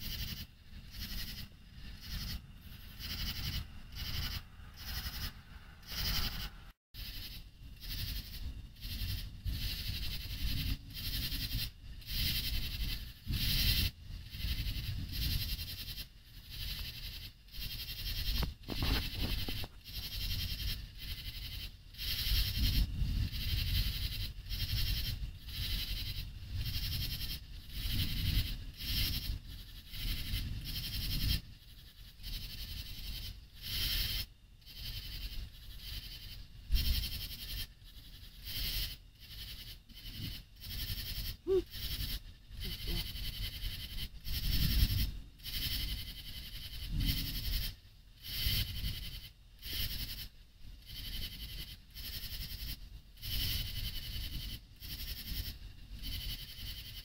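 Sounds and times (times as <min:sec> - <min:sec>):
higher frog call: 0:00.0 - 0:07.3, 0:39.9 - 0:43.6
frogs calling: 0:00.0 - 0:10.3, 0:23.3 - 0:50.2
low rumble: 0:00.4 - 0:06.8.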